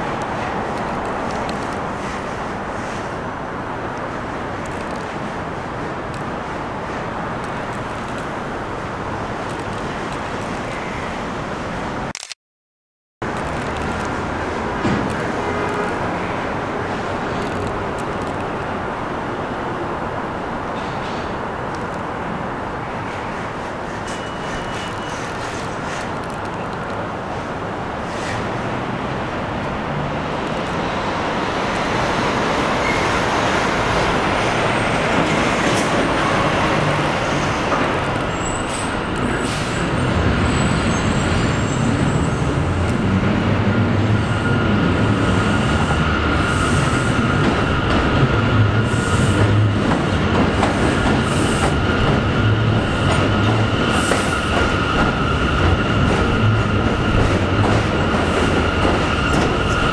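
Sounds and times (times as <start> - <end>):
train rumbling on steel structure: 13.2 - 59.9.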